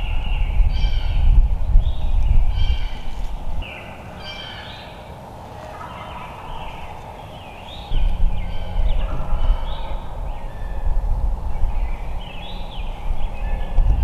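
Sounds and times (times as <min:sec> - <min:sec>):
wild turkeys gobbling: 0:05.5 - 0:10.8
loud low rumble: 0:06.0 - 0:14.0.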